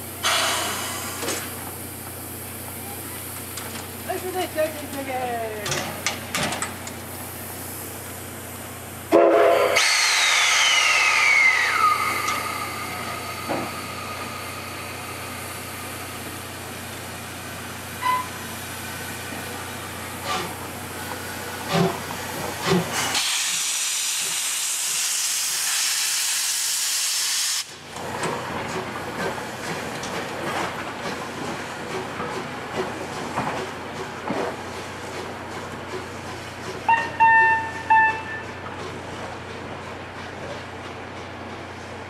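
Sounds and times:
steam hissing: 0.0 - 5.2, 7.0 - 27.9
steam locomotive whistle: 9.1 - 13.0, 18.0 - 18.4, 36.9 - 38.6.

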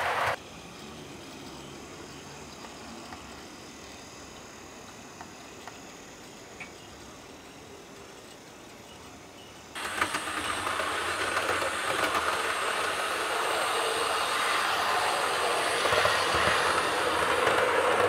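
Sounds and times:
model train rattling on track: 4.8 - 18.0.

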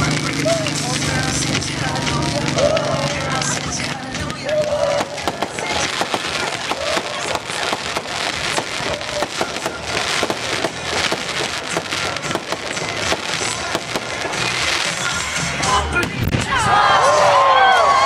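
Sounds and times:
fireworks crackling: 0.0 - 16.6.

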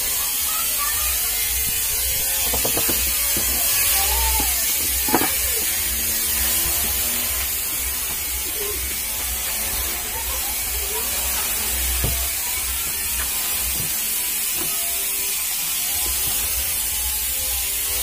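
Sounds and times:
clicks and knocks of fan parts: 2.4 - 5.9.

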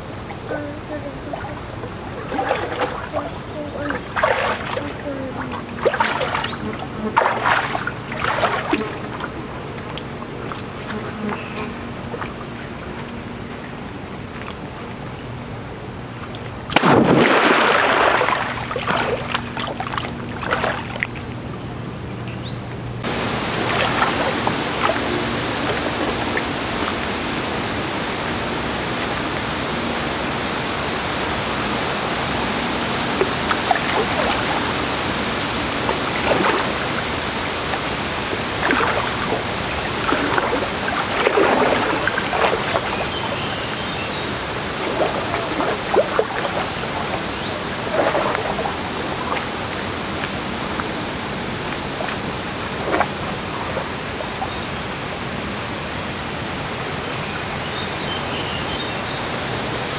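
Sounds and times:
flowing water rushing: 0.0 - 22.0, 22.8 - 59.9
splashes from wading: 1.0 - 15.0, 16.2 - 21.5, 23.0 - 29.5, 32.9 - 54.8
person splashing into river: 5.8 - 9.0, 16.7 - 20.9, 40.0 - 43.2, 47.8 - 49.4.

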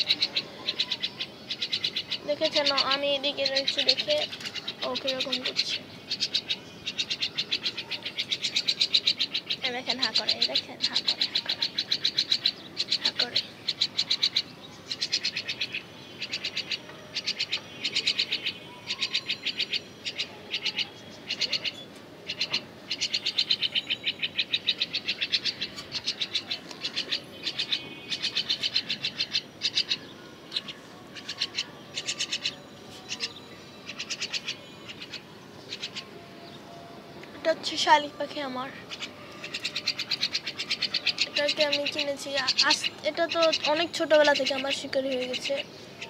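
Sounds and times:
baby bird harsh chirps: 0.0 - 36.2, 37.4 - 46.0.

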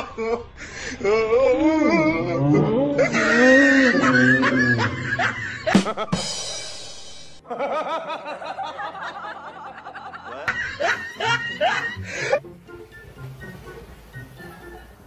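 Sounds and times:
background music: 0.0 - 15.0
man chuckling: 1.8 - 6.6, 10.2 - 12.4.

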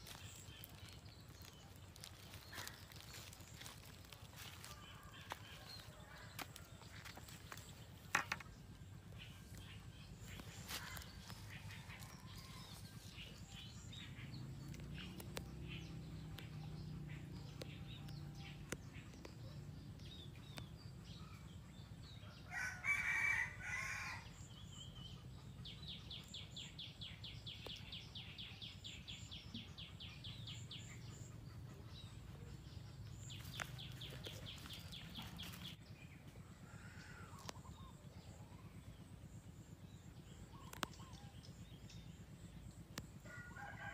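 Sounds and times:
rooster crowing: 22.5 - 24.2.

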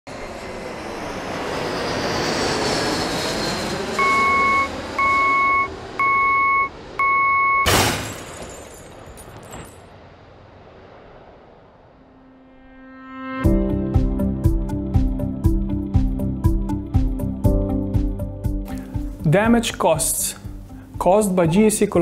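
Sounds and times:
vehicle engine: 0.1 - 12.3
loud warning beeps: 4.0 - 7.7.

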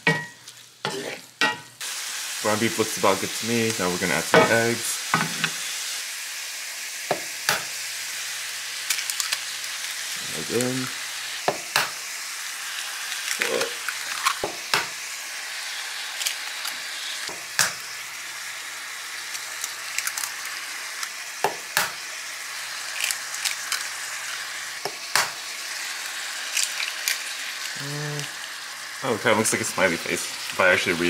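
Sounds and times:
beef sizzling in a skillet: 0.0 - 31.0
eggs cracking: 8.8 - 10.8, 12.8 - 14.9, 16.0 - 17.8, 19.1 - 22.0, 22.6 - 28.7.

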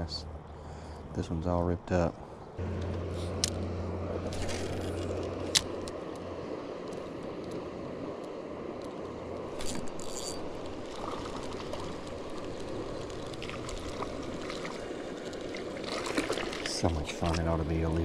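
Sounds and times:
fishing line paying off spool: 2.1 - 18.0
fishing reel click: 9.6 - 10.5.

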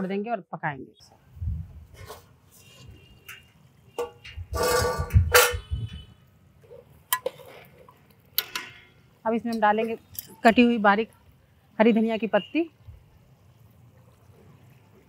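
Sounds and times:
metal lid scraping and clanging: 2.0 - 5.8
metal utensils clinking on pot: 7.1 - 10.6.

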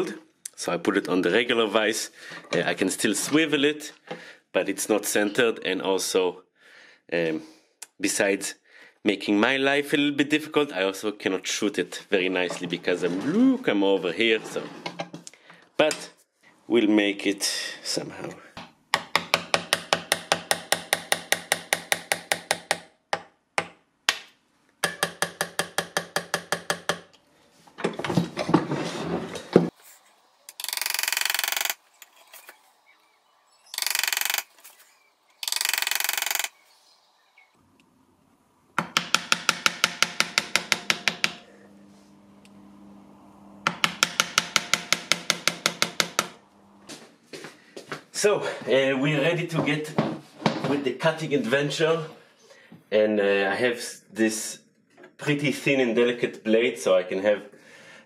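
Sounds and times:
hammer tapping on steel: 19.0 - 23.8, 24.8 - 27.1, 38.8 - 41.4, 43.7 - 46.4.

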